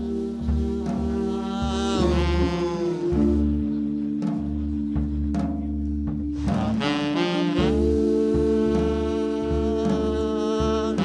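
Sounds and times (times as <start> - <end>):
tenor saxophone: 0.0 - 4.0, 6.6 - 11.0
bass notes: 0.0 - 11.0
hammond organ chords: 0.0 - 11.0.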